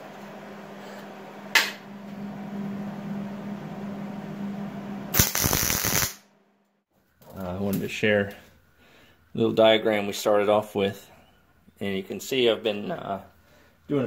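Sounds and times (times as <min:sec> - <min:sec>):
welder arc crackle: 0:05.1 - 0:06.2.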